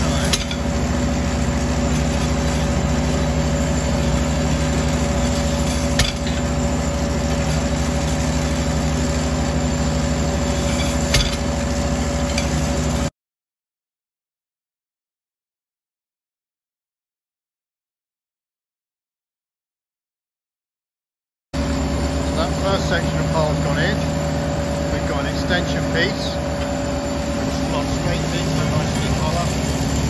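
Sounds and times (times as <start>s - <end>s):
sharp metal knocks: 0.0s - 0.7s, 5.8s - 6.4s, 10.8s - 11.5s
pile driver hammering: 0.0s - 1.0s, 4.7s - 6.5s, 11.0s - 11.6s
engine hum: 0.0s - 13.1s, 21.6s - 30.0s.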